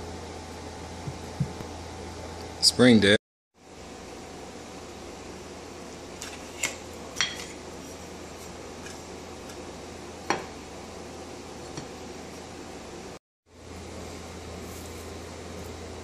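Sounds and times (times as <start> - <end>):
steady background hum: 0.0 - 16.0.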